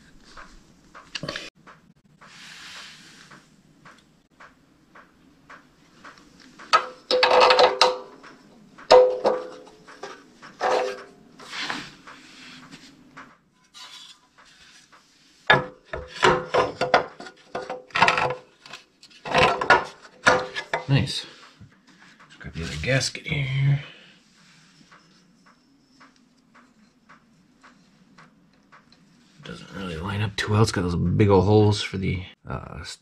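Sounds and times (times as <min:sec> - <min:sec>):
metal parts clinking and scraping: 0:06.8 - 0:08.1.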